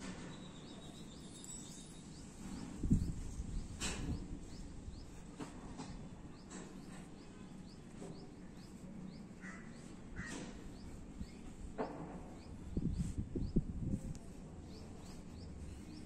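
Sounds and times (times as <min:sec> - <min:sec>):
bird chirping: 0:00.0 - 0:13.7, 0:14.6 - 0:16.0
louder bird calls: 0:09.4 - 0:11.4.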